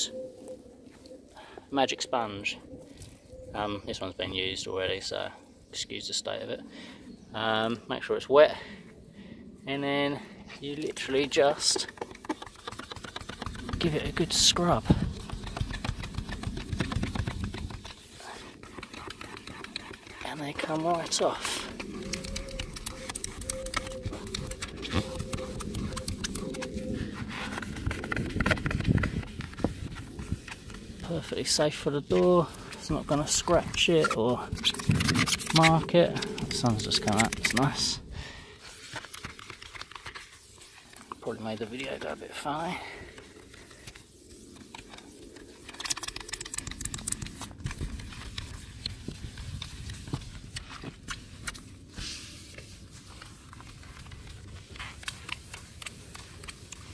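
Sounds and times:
sponge scrubbing a panel: 0:10.8 - 0:37.9, 0:38.7 - 0:56.9
sponge scrubbing door panel: 0:38.9 - 0:41.5.

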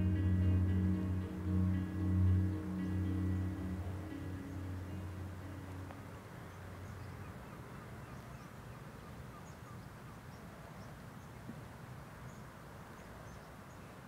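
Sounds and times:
background music: 0:00.0 - 0:07.0.

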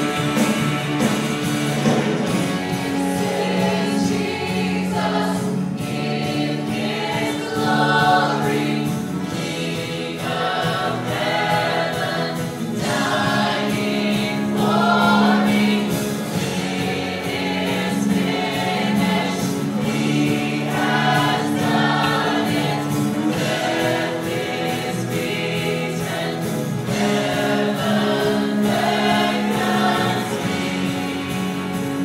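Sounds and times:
choir singing slow song: 0:00.0 - 0:32.0
sustained accompaniment: 0:00.0 - 0:32.0.

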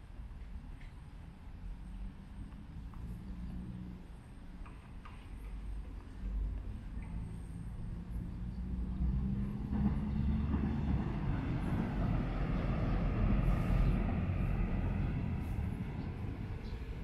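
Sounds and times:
passing vehicle rushing noise: 0:07.2 - 0:17.0.

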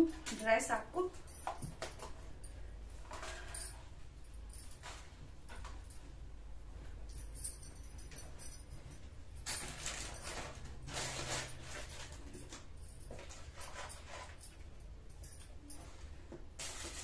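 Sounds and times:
plastic packaging rustling: 0:09.4 - 0:14.4, 0:16.6 - 0:17.0.

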